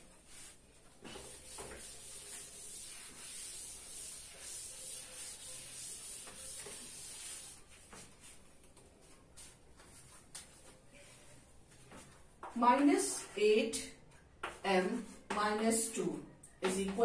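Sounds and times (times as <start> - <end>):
duster wiping chalkboard: 0.1 - 8.5.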